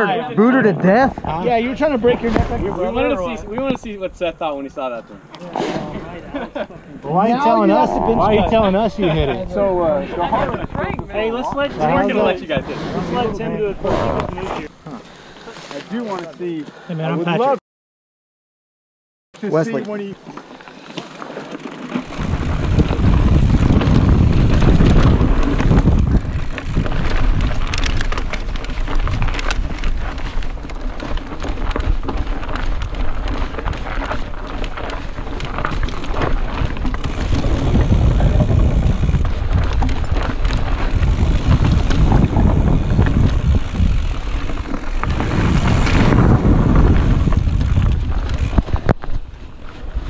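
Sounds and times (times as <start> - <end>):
wind rumbling on microphone: 1.1 - 4.4, 7.5 - 14.8, 22.0 - 50.0
bike tyres clattering over rocks: 19.7 - 50.0.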